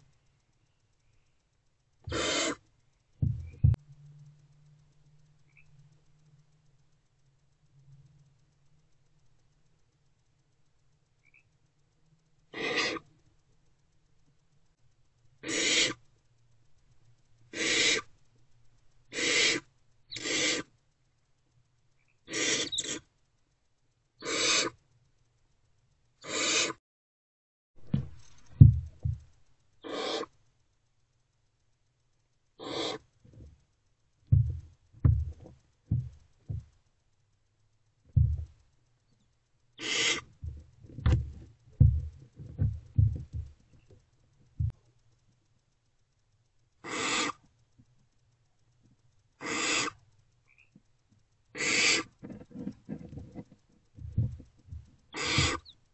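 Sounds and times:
owlets hissing begging calls: 2.1s - 2.6s, 12.6s - 13.0s, 15.4s - 16.0s, 17.5s - 18.1s, 19.1s - 20.7s, 22.3s - 23.0s, 24.2s - 24.8s, 26.2s - 26.8s, 29.8s - 30.3s, 32.6s - 33.1s, 39.8s - 40.3s, 46.8s - 47.4s, 49.4s - 50.0s, 51.6s - 52.1s, 55.1s - 55.8s
low bumps and scuffles: 3.2s - 3.8s, 27.8s - 29.3s, 34.3s - 36.7s, 38.2s - 38.6s, 40.4s - 43.6s, 54.0s - 55.6s.

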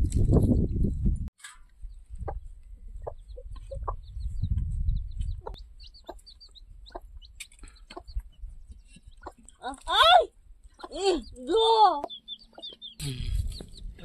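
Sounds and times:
chickens clucking: 1.8s - 9.9s, 10.7s - 11.2s, 12.0s - 14.0s.

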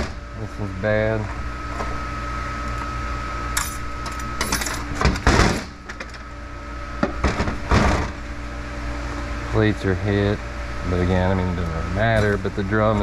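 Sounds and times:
steel parts clinking and rattling: 3.6s - 4.9s.

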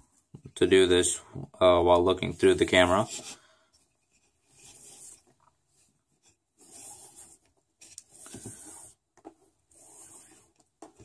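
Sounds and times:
cord rasping through weave: 2.3s - 11.0s.

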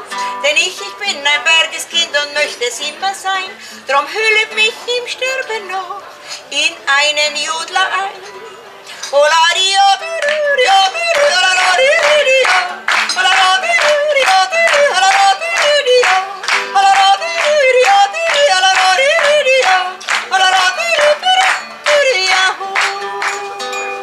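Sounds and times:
strummed classical guitar: 0.0s - 24.0s
woman yodeling: 9.2s - 23.8s.

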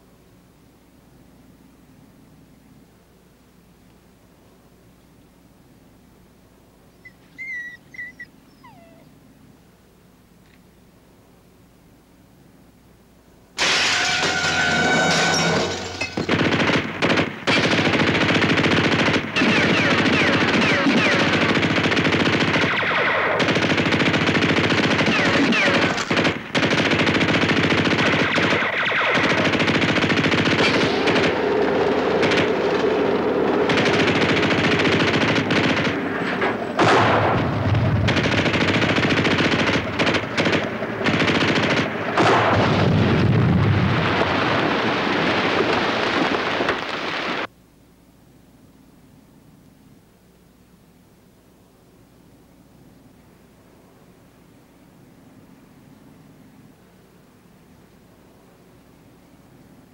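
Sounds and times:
machine-gun and rifle fire: 13.6s - 47.5s
heavy cannon booms: 36.8s - 38.2s, 42.2s - 45.6s.

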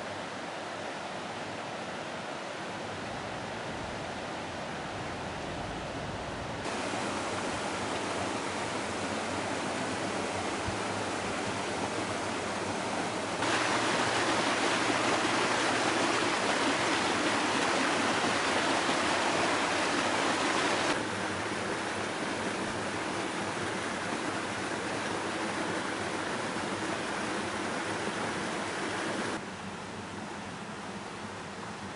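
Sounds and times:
waterfall rushing: 6.6s - 29.4s.

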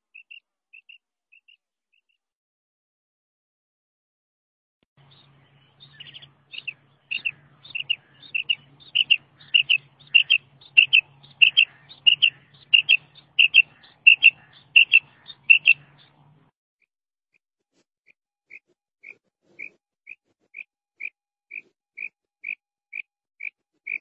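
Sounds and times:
faint low hum: 5.0s - 16.5s
quail call high paired notes: 6.0s - 16.0s.

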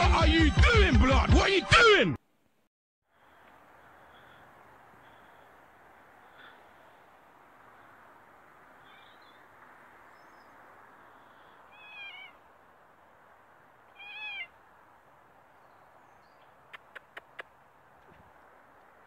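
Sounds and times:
cat meowing: 11.7s - 12.4s, 13.9s - 14.5s
quick sharp clicks: 16.7s - 17.6s.

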